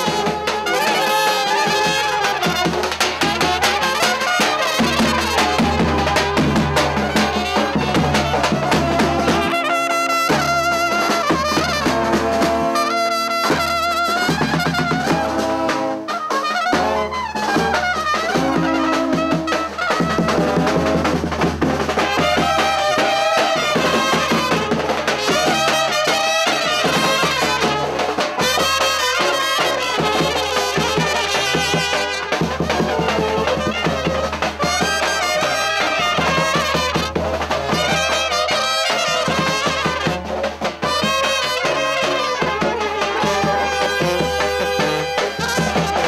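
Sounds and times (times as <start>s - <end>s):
brass band playing: 0.0s - 46.0s
bass drum beat: 4.7s - 9.7s, 42.3s - 46.0s.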